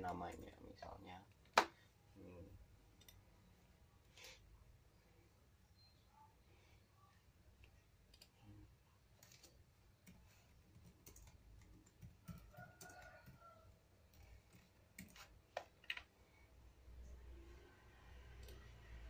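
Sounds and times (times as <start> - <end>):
faint laptop keyboard typing: 0.0 - 1.5, 7.5 - 16.3, 18.3 - 19.0.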